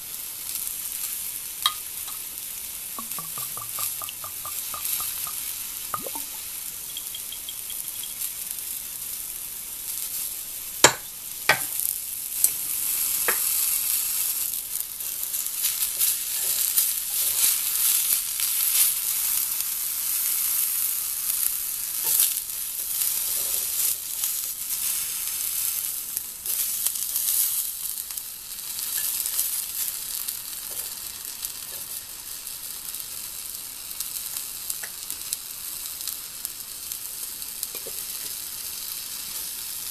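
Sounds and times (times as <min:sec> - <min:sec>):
food sizzling in a skillet: 0:00.0 - 0:39.9.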